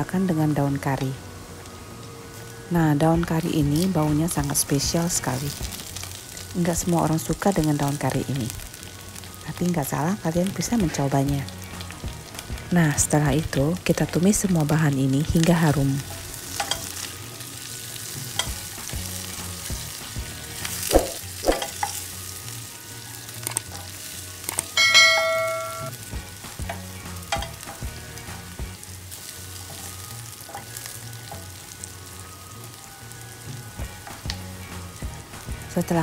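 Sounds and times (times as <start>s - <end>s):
sizzling in frying pan: 0.0s - 36.0s
bright ringing ding: 24.7s - 26.0s.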